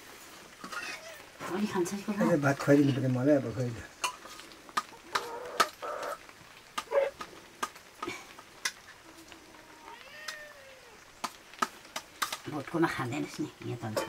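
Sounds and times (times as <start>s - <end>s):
cat meowing: 0.8s - 1.4s, 9.1s - 11.1s.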